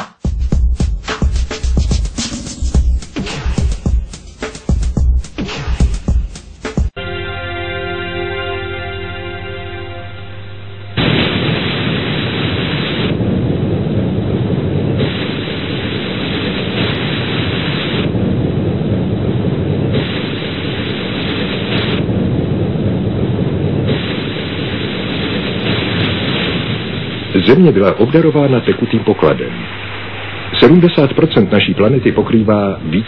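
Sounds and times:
loud rumbling rushing roar: 9.2s - 27.4s.

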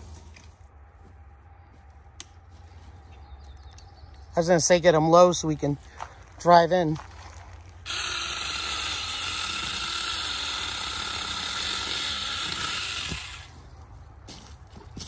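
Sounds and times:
electric chainsaw cutting wood: 7.8s - 13.6s.

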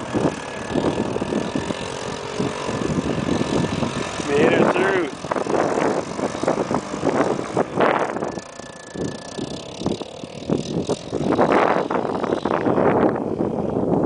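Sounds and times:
distant atv engine: 0.0s - 14.0s
wind buffeting microphone: 0.0s - 14.0s.

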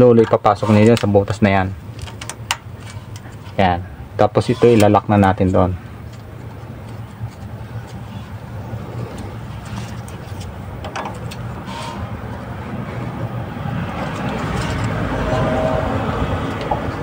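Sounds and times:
steady low rumble: 5.0s - 17.0s.

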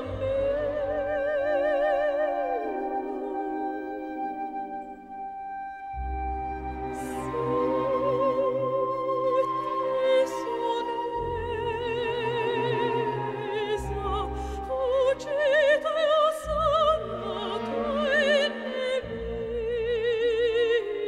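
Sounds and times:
operatic soprano singing: 0.0s - 21.0s.

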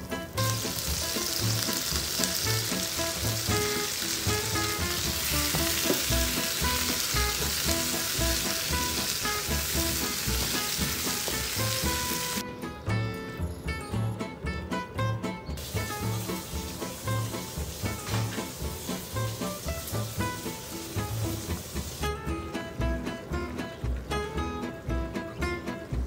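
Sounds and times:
background music with steady beat: 0.0s - 26.0s
vegetables sizzling in hot oil: 0.3s - 12.4s, 15.6s - 22.3s.

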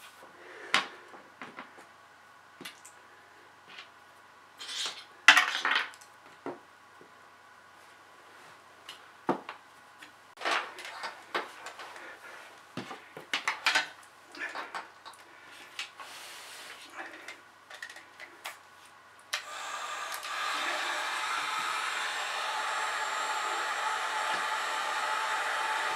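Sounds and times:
heat gun blowing: 19.4s - 25.9s.

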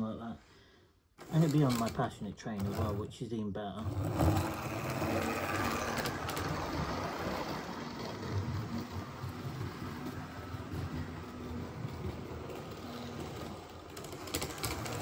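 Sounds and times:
model train motor hum: 3.8s - 15.0s
wheels rumbling on rails: 3.8s - 15.0s.

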